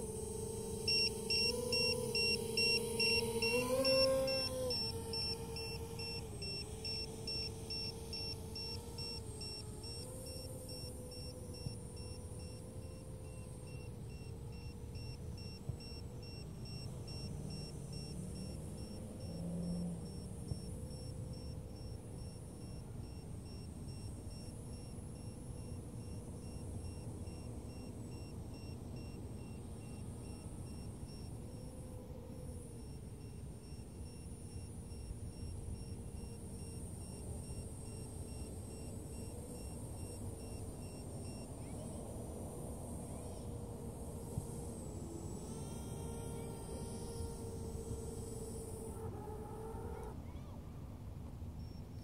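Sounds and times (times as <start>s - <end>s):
drone motors humming: 0.0s - 50.3s
rapid high beeping: 0.6s - 14.7s.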